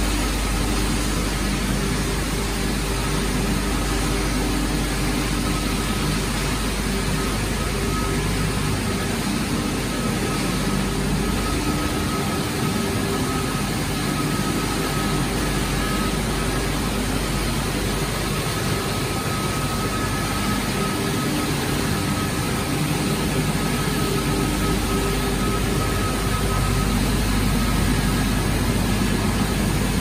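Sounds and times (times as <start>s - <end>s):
high machine whine: 0.0s - 30.0s
motors fans and conveyors running: 0.0s - 30.0s.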